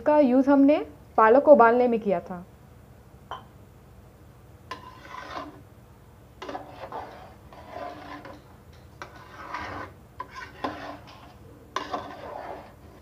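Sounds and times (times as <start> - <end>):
metal spatula scraping a pot: 4.7 - 5.7, 6.4 - 13.0.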